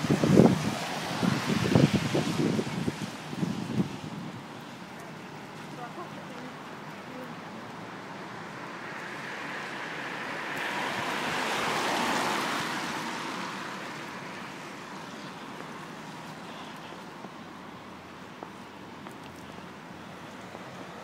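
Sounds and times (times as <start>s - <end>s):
car tyres hissing on wet road: 0.0s - 4.6s, 8.4s - 17.2s.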